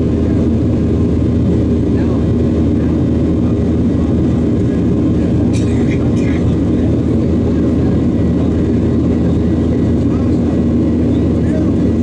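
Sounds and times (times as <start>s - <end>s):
jet engine cabin rumble: 0.0s - 12.0s.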